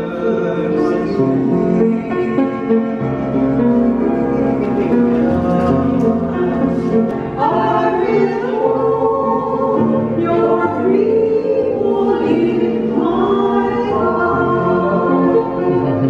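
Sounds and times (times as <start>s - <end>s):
upright piano: 0.0s - 16.0s
women singing a hymn: 5.0s - 16.0s.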